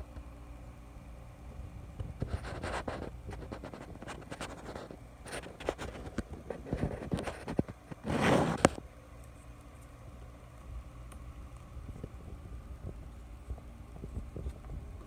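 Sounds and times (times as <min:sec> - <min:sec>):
scratching and rustling: 0:02.0 - 0:10.0.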